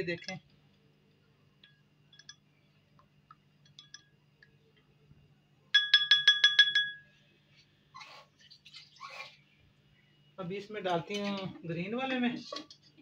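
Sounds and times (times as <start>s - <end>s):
spoon clinking against glass bowl: 1.6s - 2.4s, 3.6s - 4.2s, 5.8s - 7.1s.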